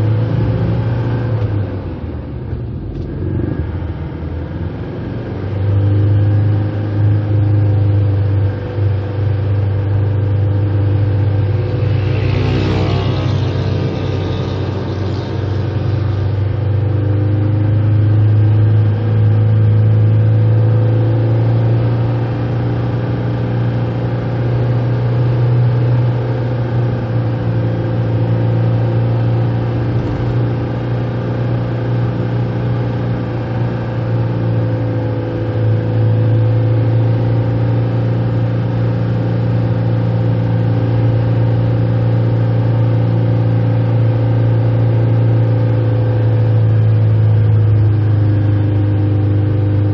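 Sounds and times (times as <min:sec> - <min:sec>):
car engine and road noise: 0:00.0 - 0:49.9.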